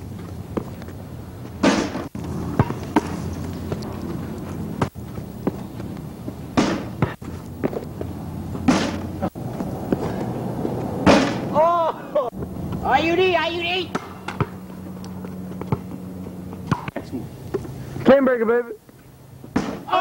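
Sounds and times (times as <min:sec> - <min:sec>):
ball bouncing on pavement: 0:00.1 - 0:11.6, 0:13.8 - 0:17.7, 0:19.5 - 0:19.9
basketball hitting backboard and rim: 0:01.6 - 0:03.2, 0:06.5 - 0:07.9, 0:08.6 - 0:09.3, 0:11.0 - 0:11.5, 0:13.9 - 0:14.6, 0:16.6 - 0:17.0, 0:19.5 - 0:19.9.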